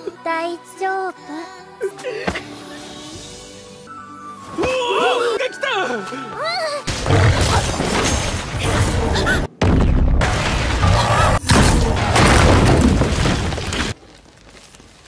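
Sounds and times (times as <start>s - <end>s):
booming impacts: 6.9s - 14.0s.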